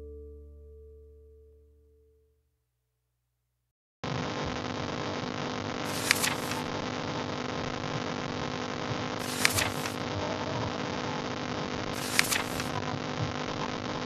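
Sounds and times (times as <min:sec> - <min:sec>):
steady hiss with low hum: 0:04.1 - 0:14.0
page-flip rustle: 0:05.9 - 0:06.7, 0:09.2 - 0:10.0, 0:12.0 - 0:12.8.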